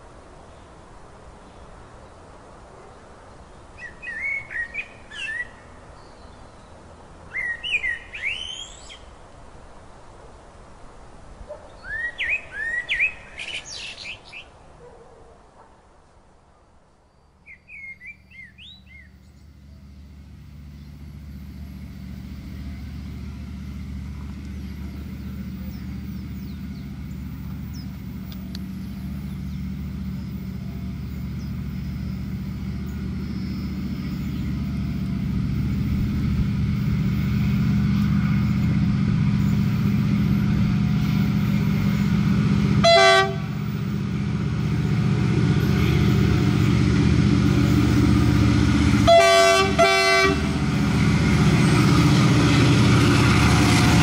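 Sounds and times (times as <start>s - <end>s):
bird chirps: 3.8s - 9.1s, 11.7s - 14.6s, 17.2s - 35.2s
freight train engine rumble: 18.0s - 54.0s
train horn blast: 37.4s - 54.0s.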